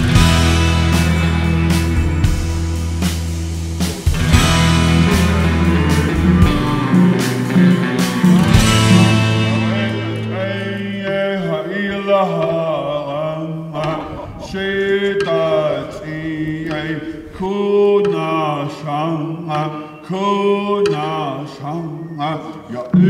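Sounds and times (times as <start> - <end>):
person chanting: 5.1 - 23.0.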